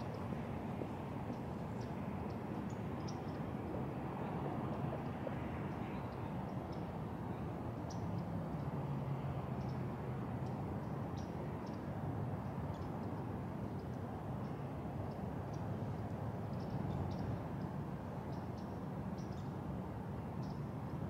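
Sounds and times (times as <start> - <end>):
distant traffic hum: 0.0 - 21.0.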